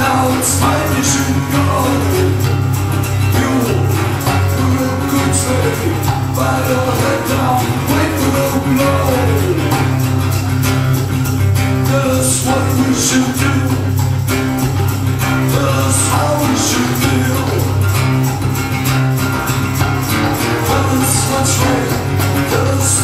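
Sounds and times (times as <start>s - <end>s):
person singing: 0.0s - 10.9s, 11.6s - 18.3s, 20.2s - 23.0s
acoustic guitars strumming: 0.0s - 23.0s.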